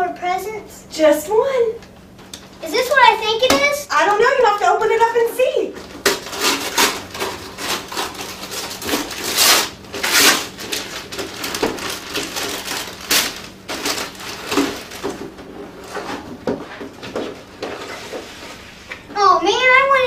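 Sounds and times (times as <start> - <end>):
wrapping paper tearing and rustling: 5.8 - 16.3.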